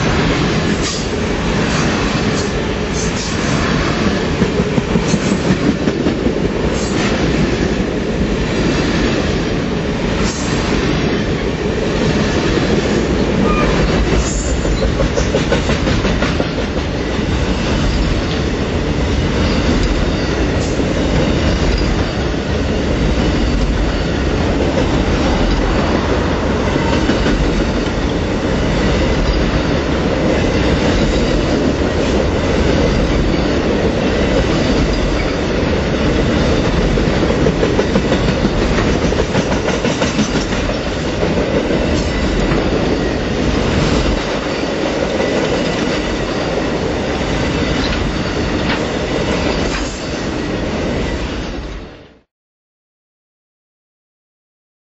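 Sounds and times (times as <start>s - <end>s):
train wheels rumbling on rail: 0.0s - 52.3s
wheels clicking over rail joints: 34.3s - 43.0s.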